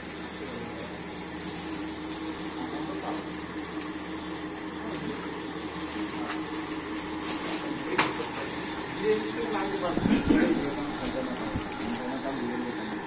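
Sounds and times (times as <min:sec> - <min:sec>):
plastic bags rustling: 0:05.5 - 0:12.7
steady tonal hum: 0:05.7 - 0:13.0.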